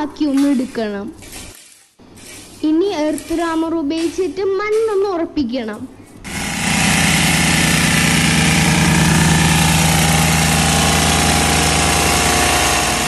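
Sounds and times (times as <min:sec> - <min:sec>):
plate compactor running: 0:06.2 - 0:13.0.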